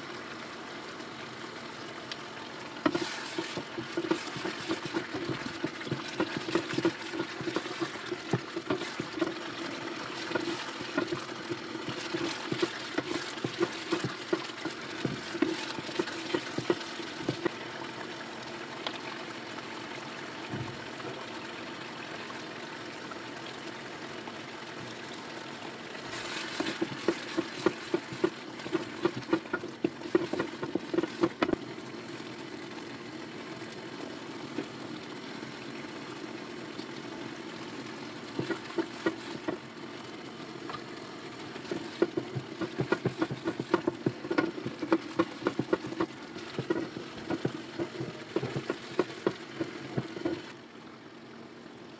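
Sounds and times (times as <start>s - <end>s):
gravy bubbling and sizzling: 0.0s - 51.5s
wooden spatula scraping pan: 2.8s - 9.4s, 10.2s - 11.2s, 11.9s - 17.5s, 26.2s - 31.5s, 38.4s - 39.6s, 41.7s - 50.5s.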